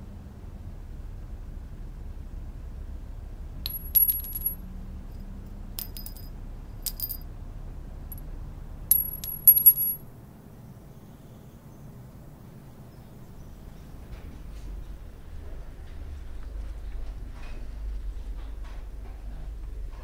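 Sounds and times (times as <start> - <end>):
low steady rumble: 0.0 - 10.5
metallic clinks and tinkles: 3.7 - 4.6, 5.8 - 7.2, 8.9 - 10.0.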